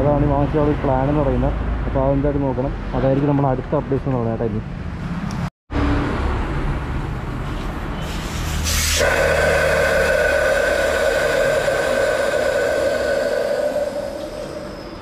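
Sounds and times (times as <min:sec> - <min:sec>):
compressed air hissing: 0:07.4 - 0:15.0.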